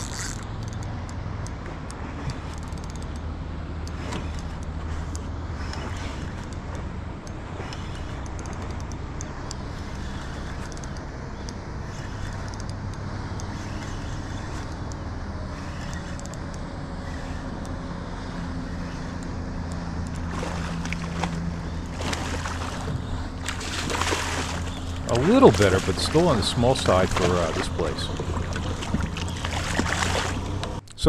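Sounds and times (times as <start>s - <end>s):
boat motor humming: 0.0s - 31.0s
fish splashing at surface: 20.3s - 30.6s.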